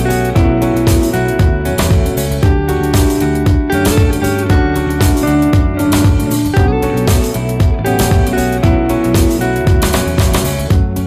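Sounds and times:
plucked guitar: 0.0 - 11.0
steady drum beat: 0.0 - 11.0.

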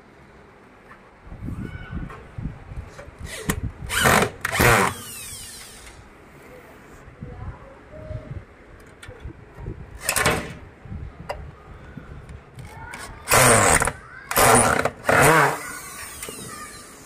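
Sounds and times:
electric drill driving screws: 3.2 - 6.0, 13.3 - 17.0.

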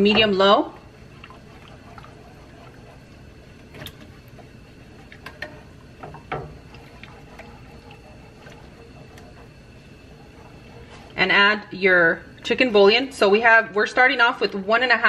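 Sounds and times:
whisk stirring thick sauce: 0.7 - 13.6
whisk tapping against pan: 5.0 - 9.6.

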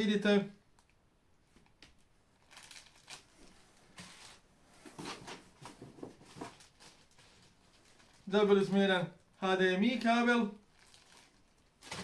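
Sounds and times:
plastic packaging crinkling: 2.3 - 4.4, 6.2 - 8.3, 10.6 - 12.0
cardboard rustling: 2.4 - 8.3.

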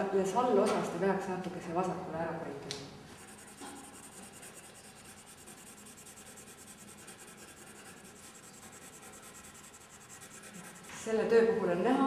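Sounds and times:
pencil scratching on paper: 3.2 - 11.1.

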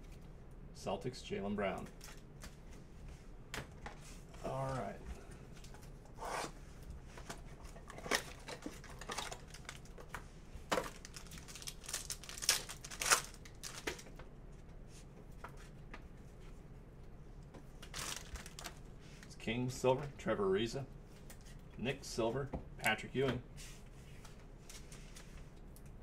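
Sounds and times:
wrapper crinkling: 8.0 - 10.0, 10.8 - 14.1, 17.8 - 18.8
card pack wrapper tearing: 10.8 - 14.0, 17.9 - 18.8.

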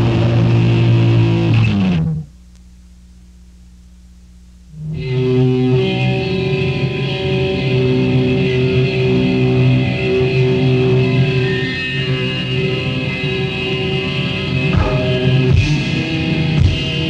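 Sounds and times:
distorted electric guitar chords: 0.0 - 2.4, 4.6 - 17.0
low steady hum: 0.0 - 5.7.

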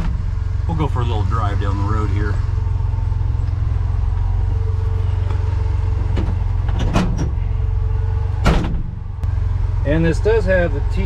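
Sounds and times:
truck engine idling: 0.0 - 11.0
sharp clunk: 8.4 - 9.0.

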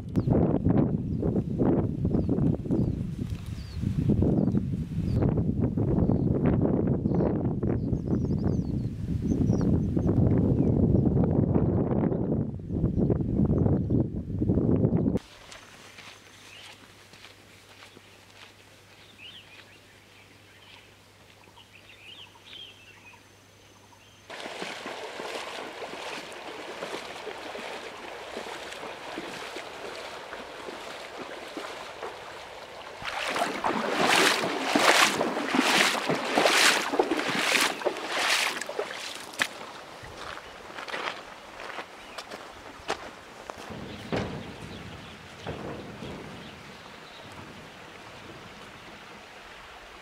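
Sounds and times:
splashing footsteps in water: 24.3 - 49.4
stream rushing and splashing: 24.3 - 50.0.

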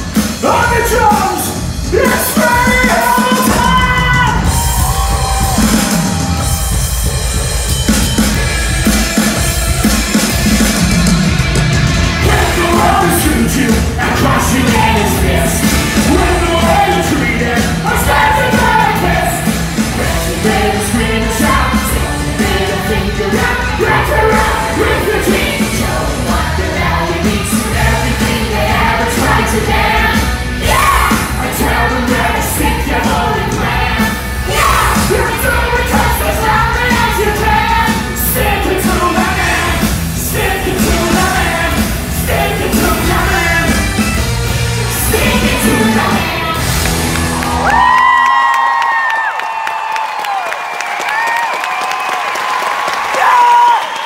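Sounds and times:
drums: 0.0 - 54.0
cast singing and yelling: 12.2 - 44.0
lead vocal singing: 12.2 - 46.9.

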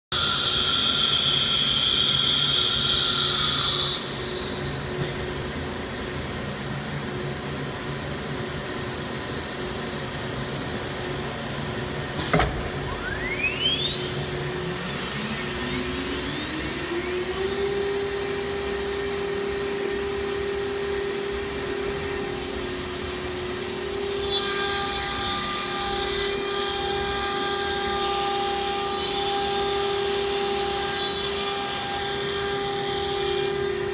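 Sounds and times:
spindle whine: 11.6 - 25.3
steady machine tones: 12.6 - 23.8.

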